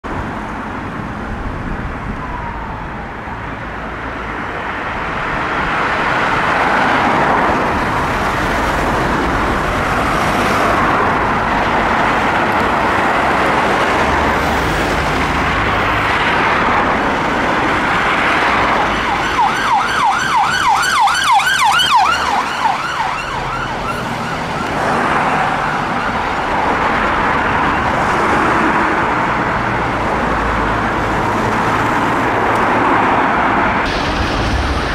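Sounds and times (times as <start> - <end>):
road traffic: 0.0 - 34.9
siren wailing and yelping: 2.1 - 3.7, 18.6 - 28.0.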